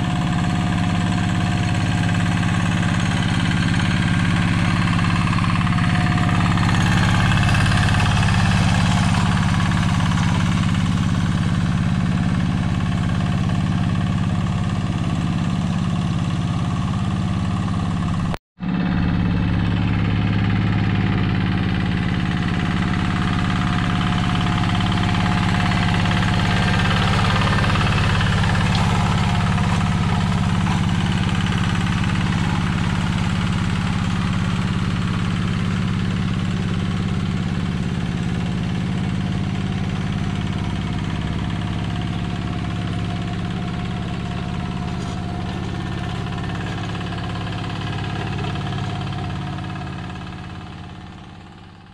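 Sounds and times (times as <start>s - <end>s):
diesel engine running under load: 0.0s - 51.9s.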